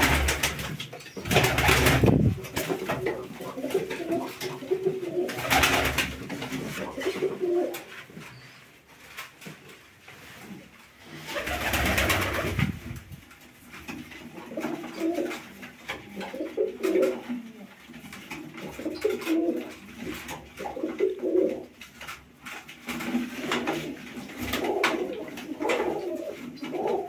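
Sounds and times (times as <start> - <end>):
pigeons cooing: 0.0 - 6.0, 6.6 - 8.5, 14.2 - 17.8, 18.4 - 21.7, 23.1 - 27.0.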